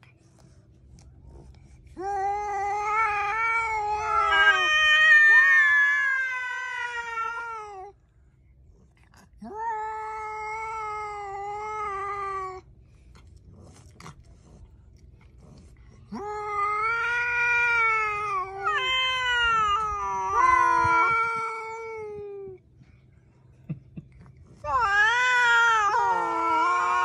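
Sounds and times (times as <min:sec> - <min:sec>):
cats yowling: 0:01.9 - 0:08.0, 0:09.4 - 0:12.7, 0:16.1 - 0:22.6, 0:24.3 - 0:27.0.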